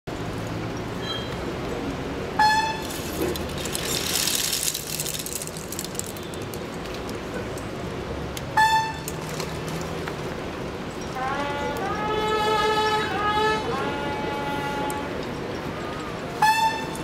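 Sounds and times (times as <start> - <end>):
loud horn toots: 11.2 - 15.2, 16.4 - 17.0.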